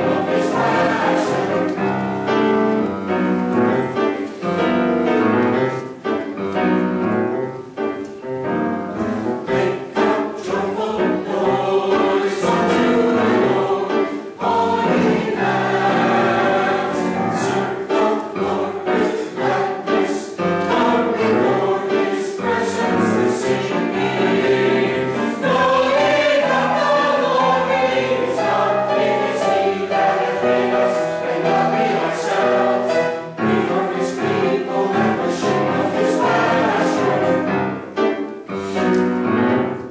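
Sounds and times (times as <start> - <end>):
mixed choir singing: 0.0 - 6.4, 9.0 - 39.9.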